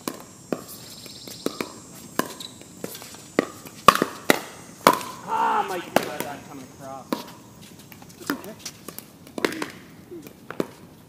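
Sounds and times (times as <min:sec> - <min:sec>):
person speaking: 0:05.2 - 0:07.2.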